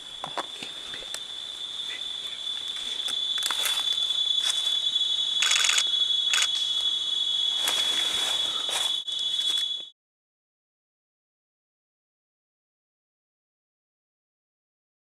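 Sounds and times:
leaves rustling: 0:00.0 - 0:09.8
high-pitched insect drone: 0:00.0 - 0:09.9.

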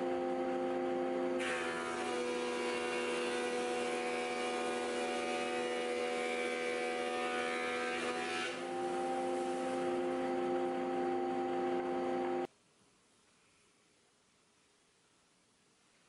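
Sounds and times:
planer motor humming: 0:08.0 - 0:12.5.

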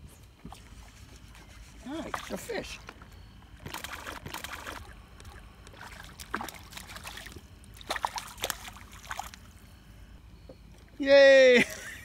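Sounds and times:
fish splashing in water: 0:03.6 - 0:09.5.

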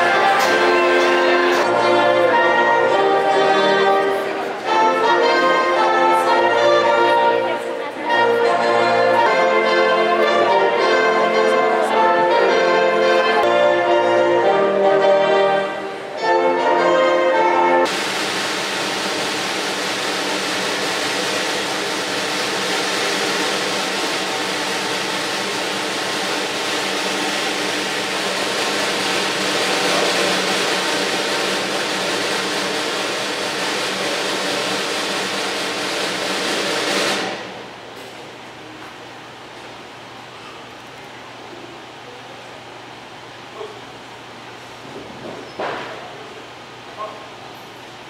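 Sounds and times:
live brass and orchestral music: 0:00.0 - 0:37.7
dense steady noise: 0:00.0 - 0:48.0.

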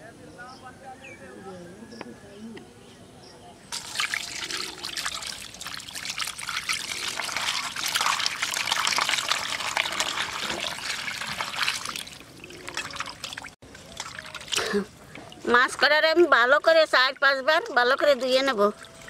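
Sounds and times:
water splashing in a bowl: 0:03.7 - 0:15.8.

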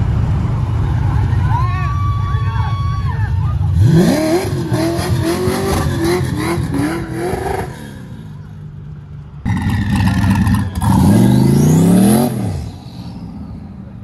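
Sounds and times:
car engine burbling: 0:00.0 - 0:14.0
pickup truck engine revving: 0:09.5 - 0:13.3.

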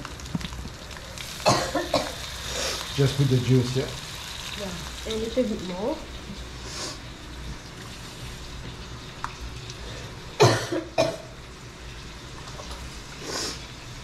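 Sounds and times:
person coughing: 0:01.4 - 0:02.2, 0:10.4 - 0:11.3.

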